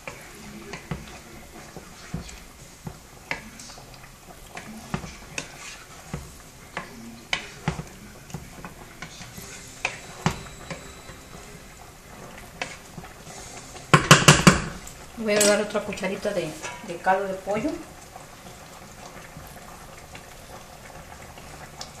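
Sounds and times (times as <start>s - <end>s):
spoon stirring thick sauce: 0.0s - 22.0s
spoon knocking against pot: 9.8s - 11.2s, 13.9s - 14.8s.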